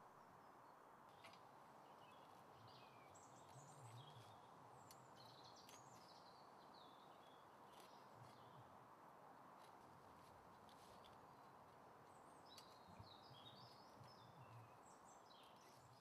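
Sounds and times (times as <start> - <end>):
birds chirping: 1.1 - 8.7, 11.2 - 16.0.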